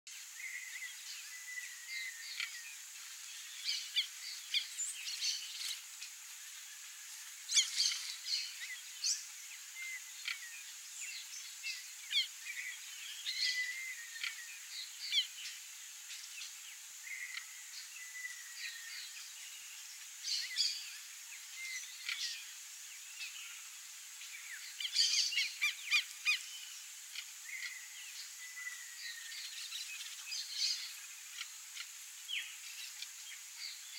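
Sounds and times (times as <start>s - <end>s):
steady high-pitched hiss: 0.1s - 33.9s
birds chirping and calling: 7.5s - 16.3s.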